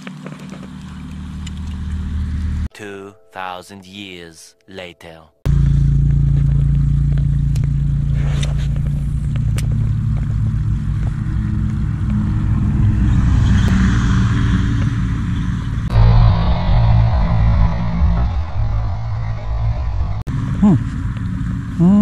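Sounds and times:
engine running steadily: 5.5s - 12.7s.

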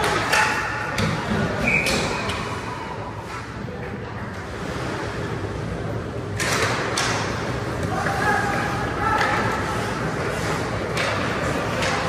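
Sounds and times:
hockey sticks clacking on puck: 0.0s - 2.4s, 6.4s - 12.0s
spectators' voices: 5.5s - 12.0s.

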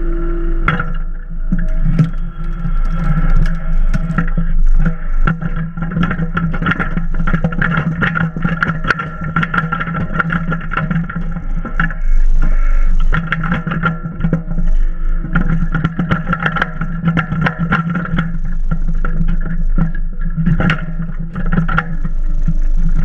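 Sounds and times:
diesel engine running: 0.0s - 5.0s
hydraulic whine: 0.0s - 7.5s.

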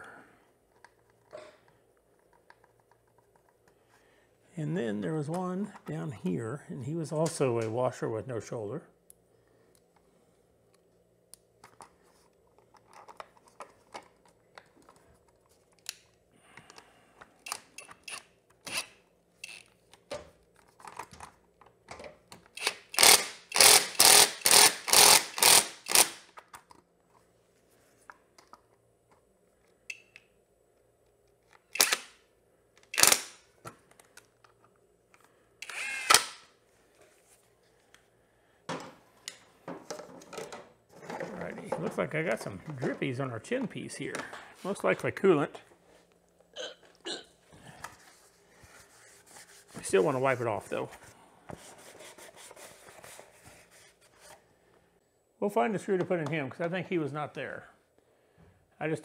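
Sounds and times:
cordless power tool bursts: 22.6s - 26.2s, 35.6s - 36.4s.

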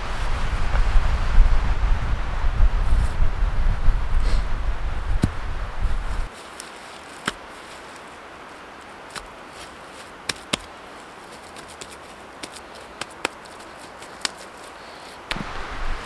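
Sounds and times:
wind rumbling on microphone: 0.0s - 6.3s, 12.0s - 16.0s.

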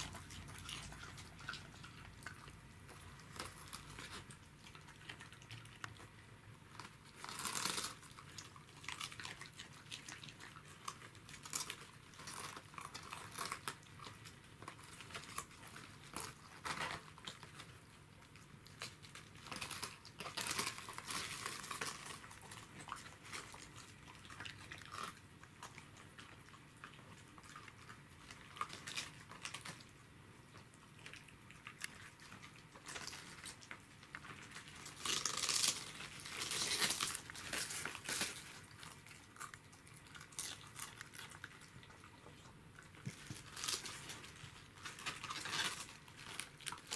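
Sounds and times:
dogs crunching cabbage leaves: 0.0s - 46.9s.

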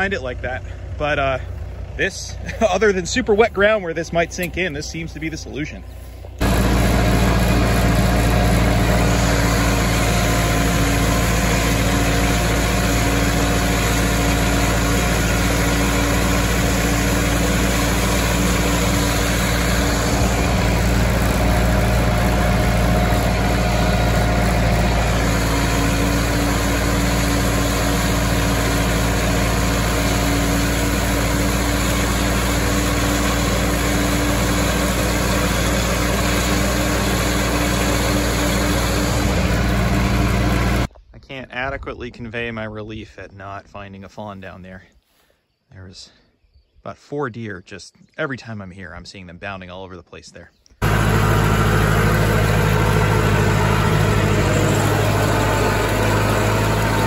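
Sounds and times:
tractor engine running: 0.0s - 40.9s, 50.8s - 57.0s
steady tones: 2.9s - 32.7s.

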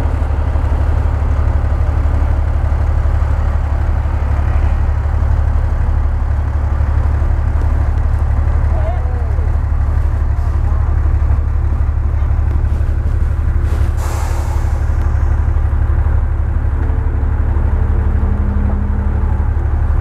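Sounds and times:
truck diesel engine running: 0.0s - 20.0s
air hiss: 13.7s - 15.2s.

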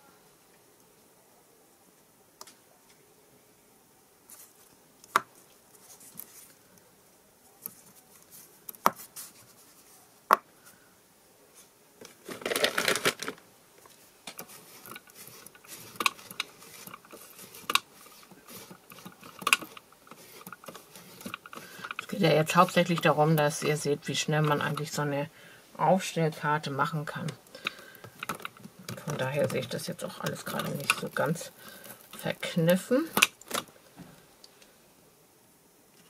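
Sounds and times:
rustling: 4.2s - 10.9s, 11.5s - 34.7s
cloth rubbing on acrylic: 7.8s - 10.1s, 13.9s - 25.1s.

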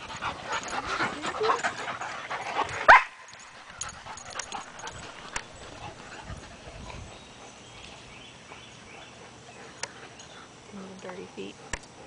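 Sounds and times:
dogs whining and yipping: 0.2s - 8.2s.

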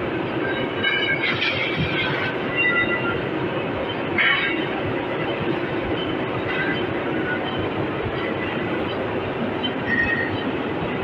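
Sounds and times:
machine shop machinery running: 0.0s - 11.0s
high metallic squeals: 0.4s - 3.2s, 6.0s - 7.6s, 9.6s - 10.6s.

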